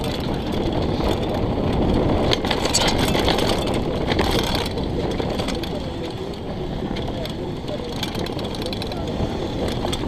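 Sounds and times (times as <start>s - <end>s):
bike rattling over bumps: 0.0s - 10.0s
bike tyres rolling on dirt: 0.0s - 10.0s
wind buffeting microphone: 0.0s - 10.0s.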